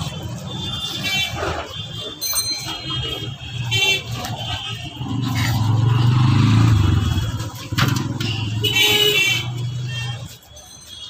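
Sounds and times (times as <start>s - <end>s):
vehicle engine passing: 5.0s - 8.2s.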